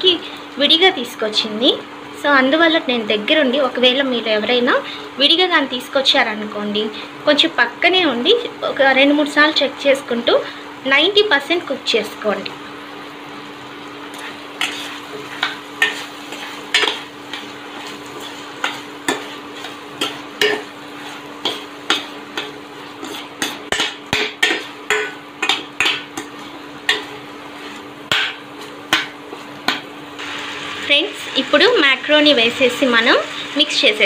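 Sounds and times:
gravy sizzling: 0.1s - 34.0s
spatula scraping metal pan: 14.1s - 29.9s.

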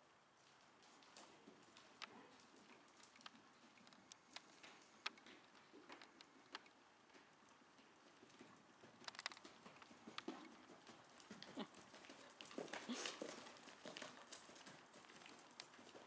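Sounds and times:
horse hoofbeats on sand: 4.4s - 16.0s.

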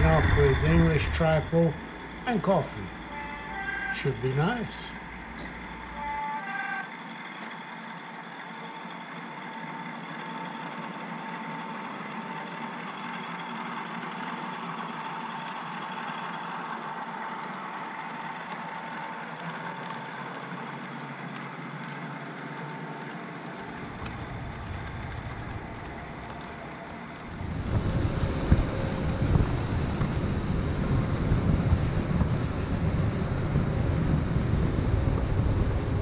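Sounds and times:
low rumble: 0.0s - 6.1s, 23.6s - 36.0s
model train hum and whine: 0.0s - 36.0s.

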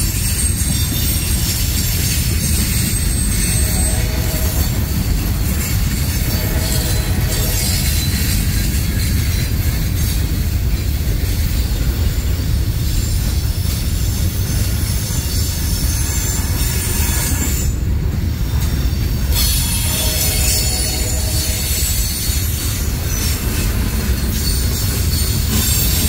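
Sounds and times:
high-pitched wheel squeal: 0.0s - 10.2s, 18.5s - 26.0s
train wheels rumbling on rail: 0.0s - 26.0s.

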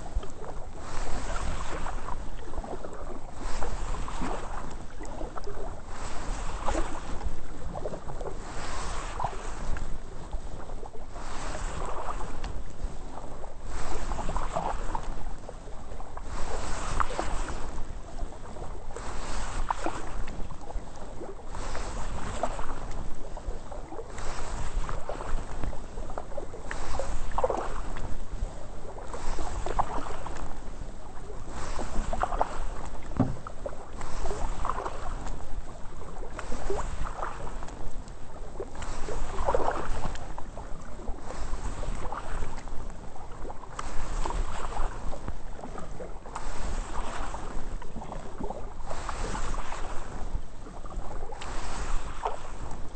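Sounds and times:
kayak paddle splashing in water: 0.0s - 52.9s.

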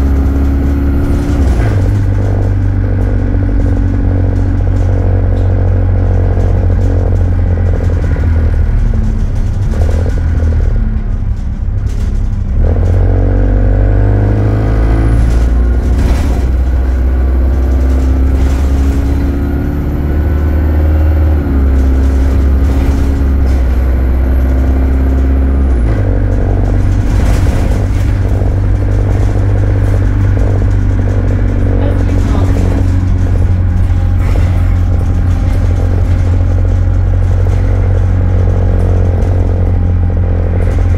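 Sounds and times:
bus engine pulling under load: 0.0s - 40.9s.

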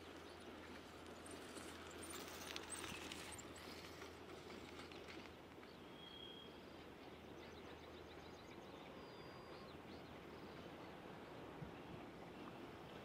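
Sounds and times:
soft clicking and rustling: 0.6s - 5.8s.

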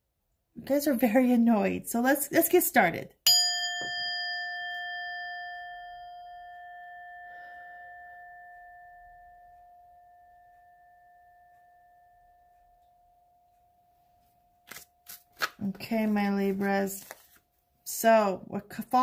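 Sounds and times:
bell-like chime ringing: 3.3s - 14.6s.

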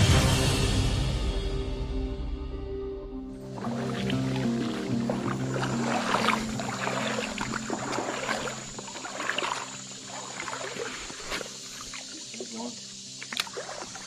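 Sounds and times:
fish splashing in water: 3.5s - 14.0s.

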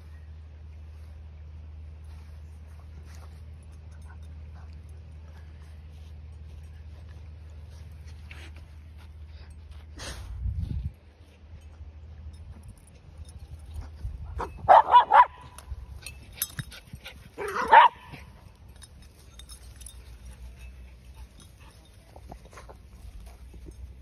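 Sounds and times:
dog barking: 14.7s - 15.5s, 17.4s - 18.2s.

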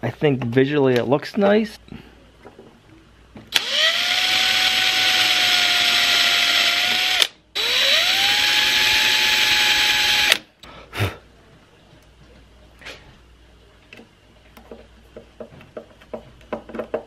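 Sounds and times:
power drill boring holes: 3.5s - 10.4s.

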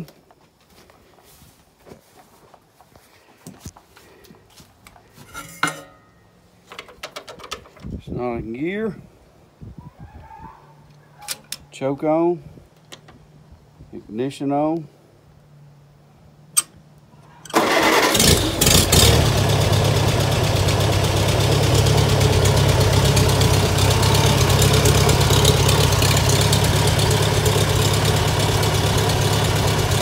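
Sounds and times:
tractor engine running: 17.4s - 30.0s
engine cranking on starter: 17.5s - 30.0s.

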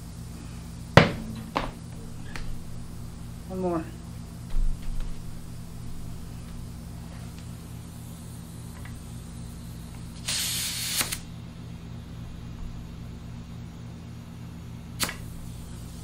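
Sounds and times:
steady low hum: 0.0s - 10.2s
compressed air hissing from hose: 10.2s - 11.2s
sharp snap: 15.0s - 15.3s.

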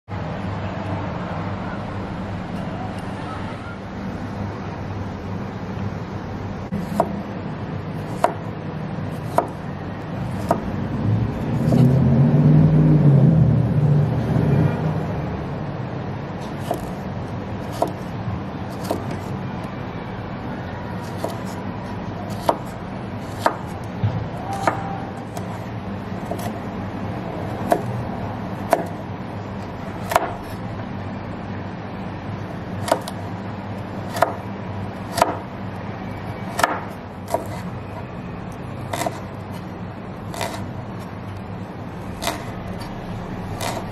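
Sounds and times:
knife striking cutting board: 40.3s - 40.6s, 42.2s - 42.9s, 43.6s - 43.9s.

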